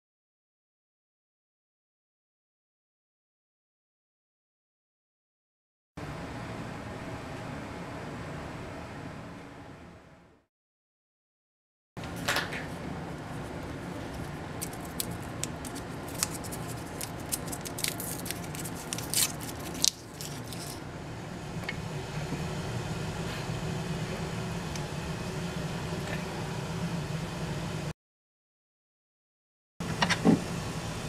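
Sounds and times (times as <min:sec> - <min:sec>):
paper wrapper crinkling and tearing: 0:13.3 - 0:20.8.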